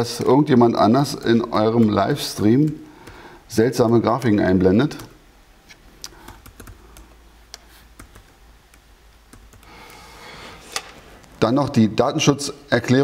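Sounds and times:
soft hiss: 0:00.0 - 0:13.0
laptop keyboard typing: 0:06.1 - 0:07.2, 0:07.9 - 0:09.8.

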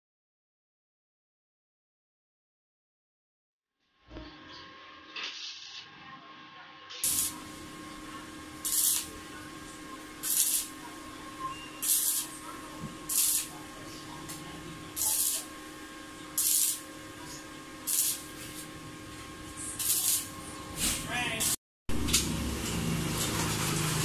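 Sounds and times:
arc welder crackling hiss: 0:05.1 - 0:05.9, 0:06.9 - 0:22.3.

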